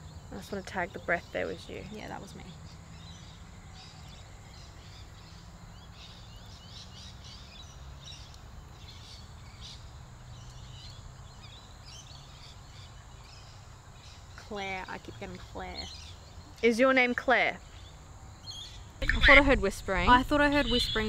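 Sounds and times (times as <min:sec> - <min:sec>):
birds chirping: 0:00.0 - 0:21.0
faint low outdoor rumble: 0:00.0 - 0:21.0.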